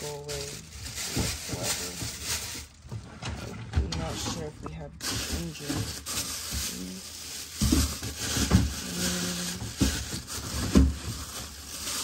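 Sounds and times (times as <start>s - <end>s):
thumps and knocks in cupboards: 7.6s - 8.9s, 9.5s - 11.4s.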